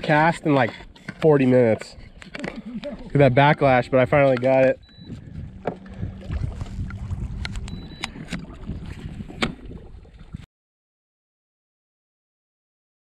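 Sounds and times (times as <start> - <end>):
handling and water noise: 0.0 - 10.5
faint low hum: 2.0 - 10.4.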